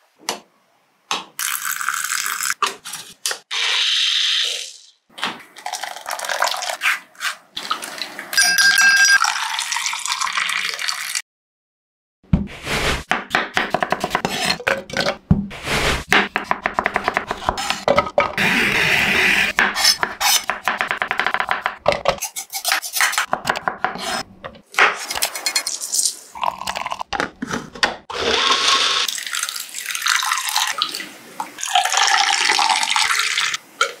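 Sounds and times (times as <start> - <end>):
juice pouring into a glass: 5.6 - 6.8, 9.2 - 11.2, 26.4 - 27.0, 28.4 - 30.8, 31.6 - 33.6
knife chopping on wooden board: 16.1 - 18.4, 19.6 - 24.2.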